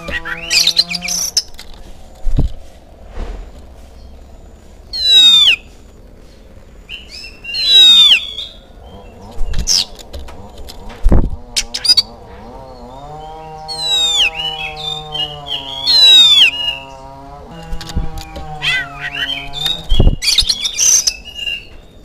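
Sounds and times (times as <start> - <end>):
bird whistling and chirping: 4.9 - 5.7, 6.9 - 8.6, 13.7 - 16.9, 18.4 - 21.7.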